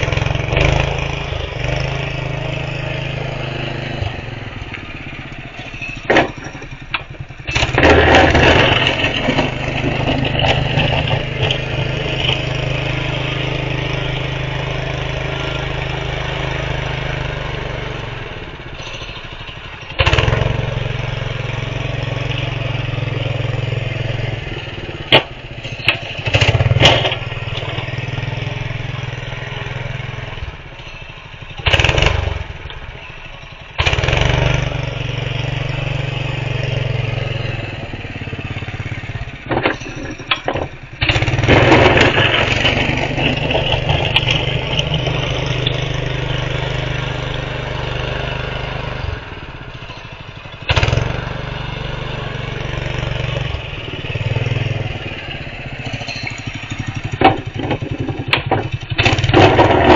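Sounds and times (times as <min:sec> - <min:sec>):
snow plow engine running: 0:00.0 - 0:59.9.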